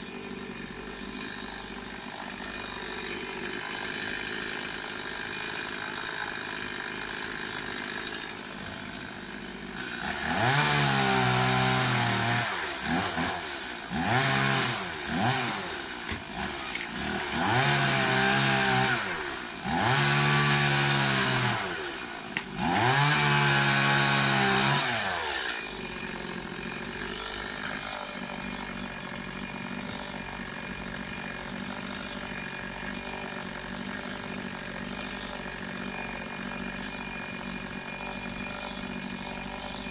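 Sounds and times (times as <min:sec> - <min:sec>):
chainsaw revving and idling: 0:00.0 - 0:39.9.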